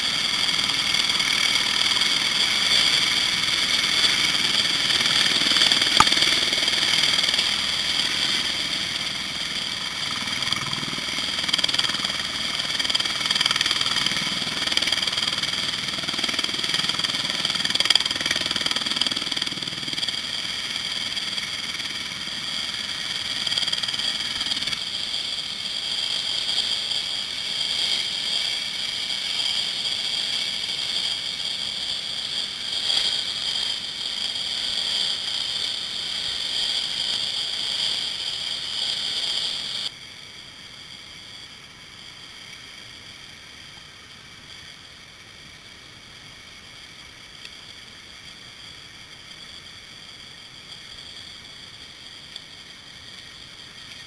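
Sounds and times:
helicopter turbine whine: 0.0s - 42.0s.

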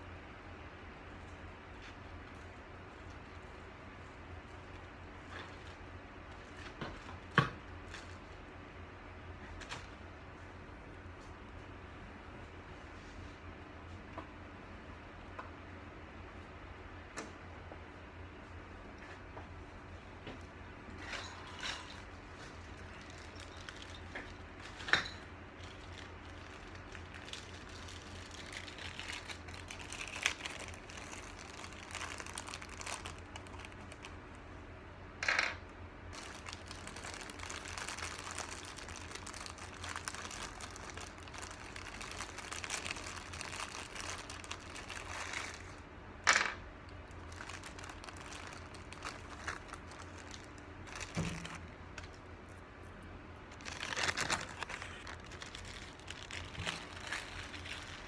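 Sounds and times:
steady low hum: 0.0s - 58.0s
plastic packaging crinkling: 1.8s - 8.4s, 20.4s - 34.4s, 36.1s - 45.8s, 46.4s - 52.3s, 53.5s - 58.0s.

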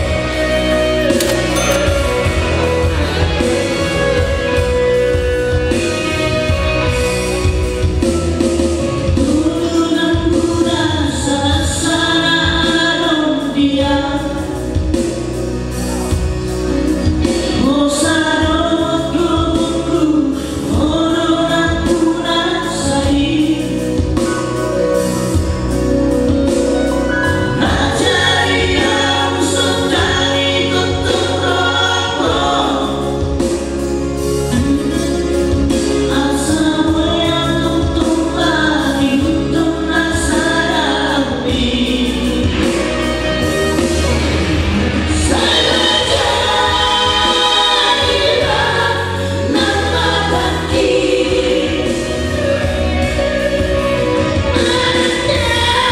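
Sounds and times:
accompaniment with bass line: 0.0s - 55.9s
male trio singing in harmony: 27.1s - 33.6s, 45.1s - 55.9s.

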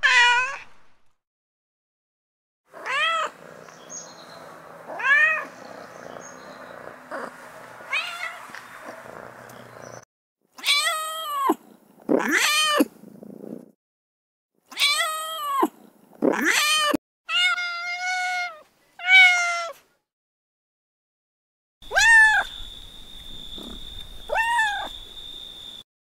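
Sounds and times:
cat purring and meowing: 2.7s - 10.0s, 10.6s - 13.7s, 23.4s - 25.0s
drawn-out cat meows: 2.8s - 3.3s, 4.9s - 5.5s, 7.9s - 8.5s, 10.6s - 11.6s, 14.7s - 15.6s, 16.3s - 19.8s, 21.9s - 22.5s, 24.3s - 25.0s.

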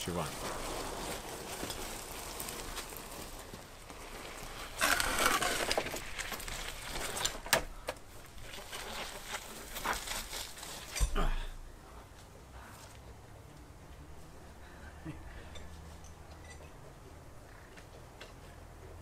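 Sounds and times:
concrete post scraping in soil: 0.3s - 11.2s.

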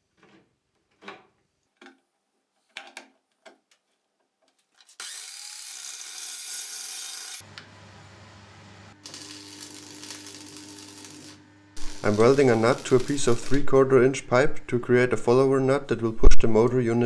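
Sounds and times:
chop saw cutting steel pipe: 5.0s - 7.5s, 9.0s - 13.8s.

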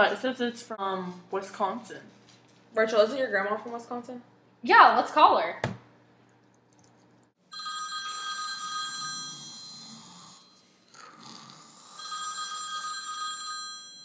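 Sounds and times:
telephone ringing: 7.5s - 10.6s, 12.0s - 14.0s.

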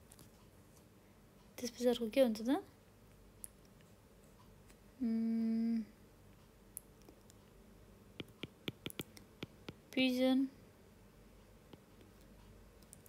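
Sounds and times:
person humming: 5.0s - 6.0s
stylus tapping on tablet screen: 8.2s - 9.9s, 11.7s - 12.3s.

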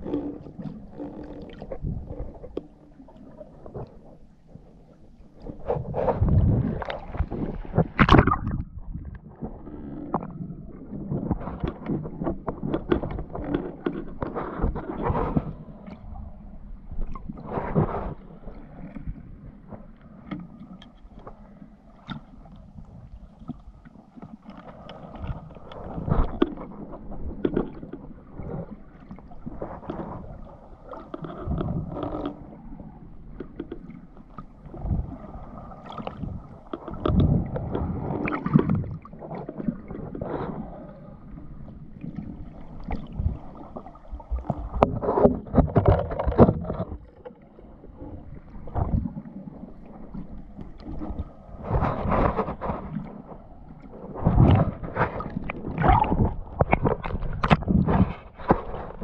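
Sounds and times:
water sloshing and gurgling: 0.0s - 59.0s.

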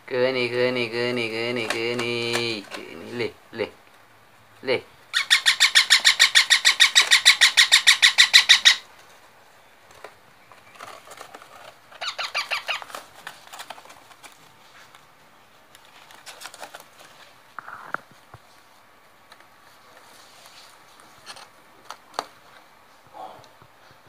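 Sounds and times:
parakeets calling: 5.1s - 8.9s, 12.0s - 12.9s.

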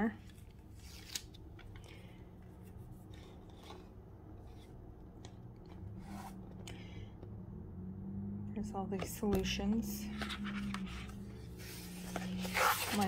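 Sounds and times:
low steady hum: 0.0s - 13.0s
paper pages rustling: 0.2s - 4.7s, 10.0s - 13.0s.

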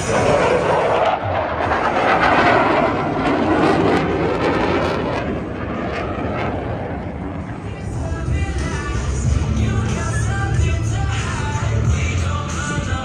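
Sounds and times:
jet aircraft roaring past: 0.0s - 13.0s.

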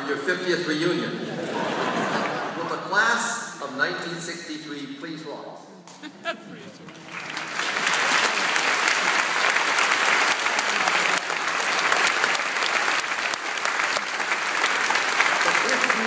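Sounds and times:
large audience applauding: 6.8s - 16.0s.

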